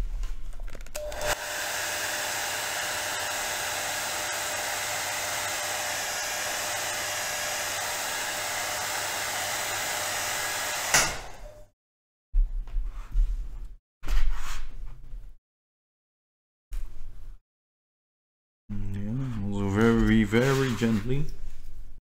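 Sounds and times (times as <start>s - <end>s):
hot-air blower rushing air: 1.0s - 11.7s.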